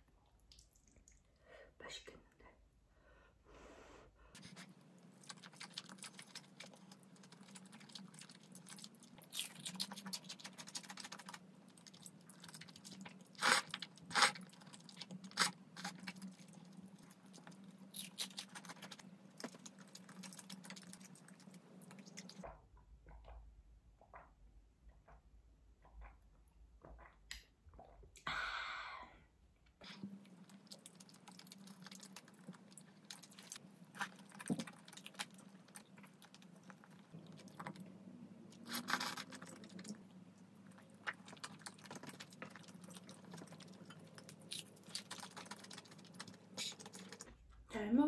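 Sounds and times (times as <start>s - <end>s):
person chewing and slurping: 29.9s - 37.8s, 38.6s - 47.3s.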